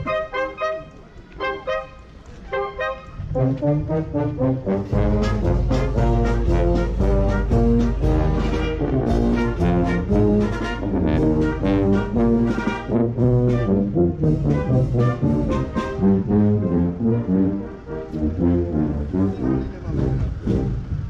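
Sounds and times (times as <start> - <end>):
brass band playing a march: 0.0 - 21.0
bass drum and cymbals: 4.8 - 16.3.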